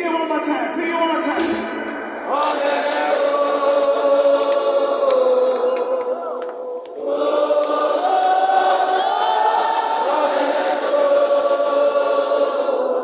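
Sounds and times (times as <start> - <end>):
crowd singing together: 1.6 - 13.0.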